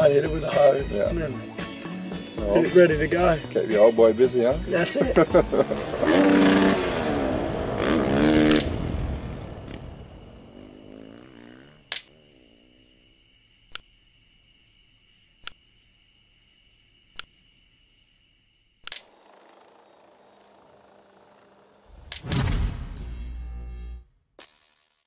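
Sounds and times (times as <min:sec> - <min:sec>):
dirt bike engine revving: 0:02.1 - 0:13.2, 0:19.0 - 0:22.4.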